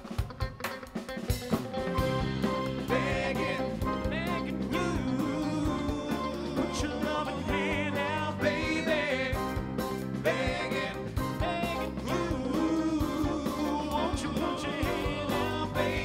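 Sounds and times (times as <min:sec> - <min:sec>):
band with electric guitar: 0:00.0 - 0:16.0
men singing in harmony: 0:02.4 - 0:16.0.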